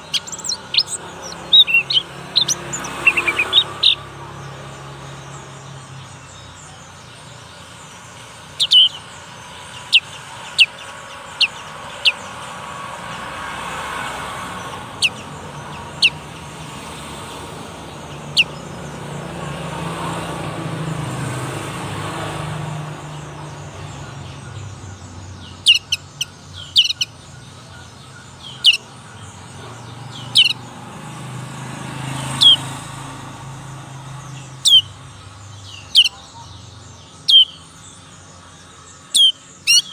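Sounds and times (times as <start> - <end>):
young bird chirping: 0.0 - 12.5, 14.6 - 16.6, 17.4 - 19.0, 23.3 - 30.7, 32.3 - 32.7, 33.8 - 39.9.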